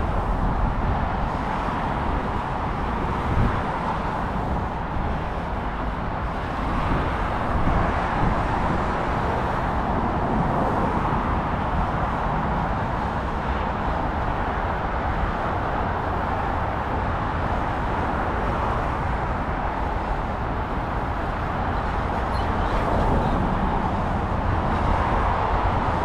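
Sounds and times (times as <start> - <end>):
car traffic road noise: 0.0 - 26.0.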